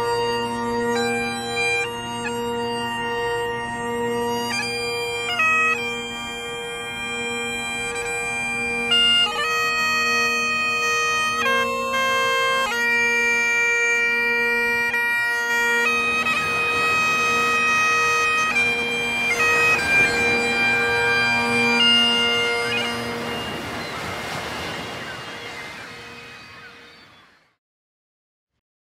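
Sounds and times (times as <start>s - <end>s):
bagpipes playing slow tune: 0.0s - 27.1s
surf rushing: 15.7s - 27.3s.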